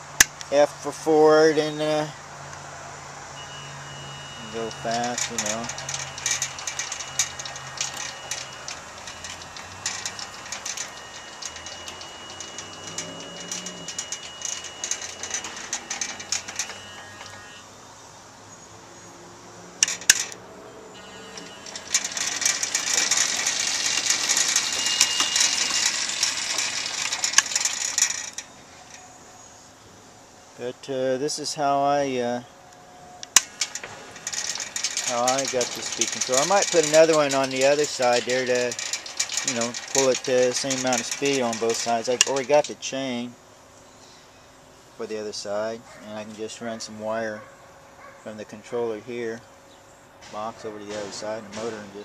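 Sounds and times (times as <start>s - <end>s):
motor whine: 3.1s - 30.1s
chain rattling over sprockets: 4.4s - 17.5s, 19.8s - 20.4s, 21.3s - 29.2s, 33.4s - 42.7s.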